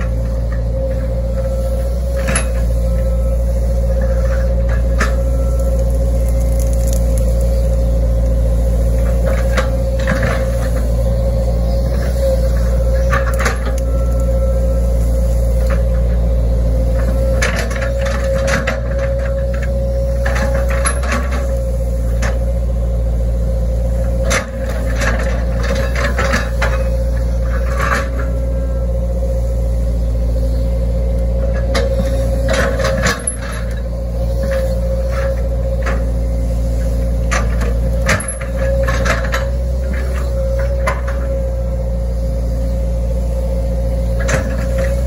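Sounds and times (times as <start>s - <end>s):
excavator diesel engine: 0.0s - 45.0s.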